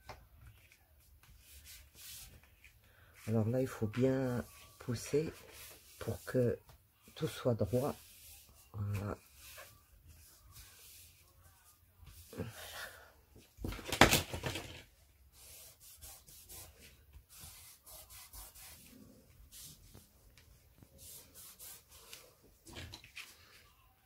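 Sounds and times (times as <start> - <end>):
cloth rubbing on card: 0.5 - 12.5, 15.3 - 22.4.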